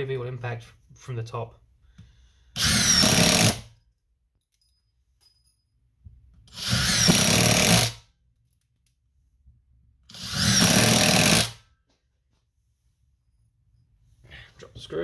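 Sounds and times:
impact driver driving screws: 2.6 - 3.7, 6.5 - 8.0, 10.1 - 11.6.

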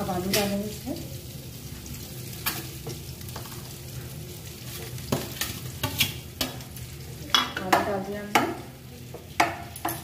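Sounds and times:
faint frying sizzle: 0.0 - 10.0
steel bowl knocking on pan: 7.3 - 10.0.

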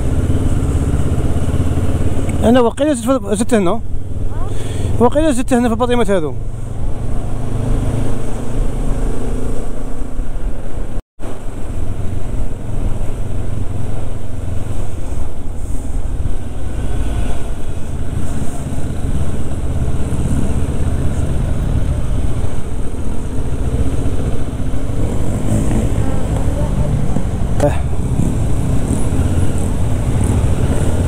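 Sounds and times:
motorcycle engine running: 17.5 - 31.0.

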